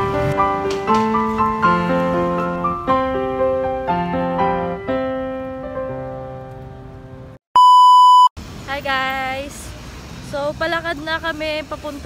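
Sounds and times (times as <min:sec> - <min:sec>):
piano playing slow chords: 0:00.0 - 0:07.4
high-pitched beep: 0:07.6 - 0:08.3.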